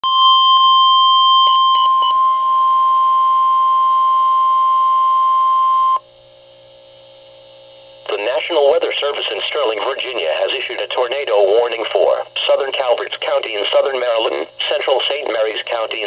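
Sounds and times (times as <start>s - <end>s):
short beeps: 0.0s - 6.0s
steady alarm tone: 0.0s - 6.0s
faint hum: 0.1s - 16.0s.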